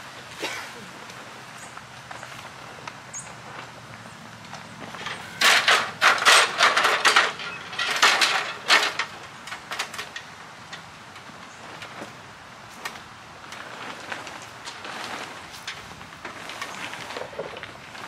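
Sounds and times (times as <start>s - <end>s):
rustling and clattering of parts: 4.5s - 18.0s.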